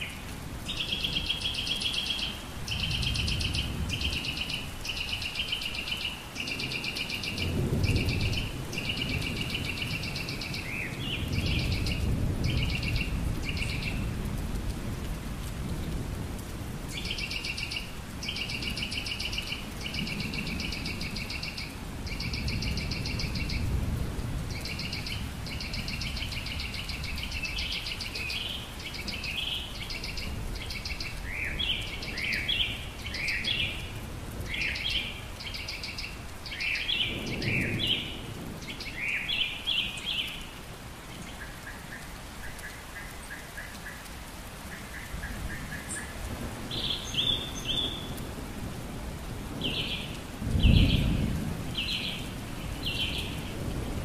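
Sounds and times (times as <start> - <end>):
songbird singing trills: 0.0 - 14.0, 17.0 - 23.7, 24.5 - 33.9, 34.5 - 40.5, 44.7 - 48.2, 49.6 - 53.4
steady rain: 0.0 - 54.0
distant thunder: 6.6 - 14.8, 36.6 - 40.2, 45.2 - 54.0.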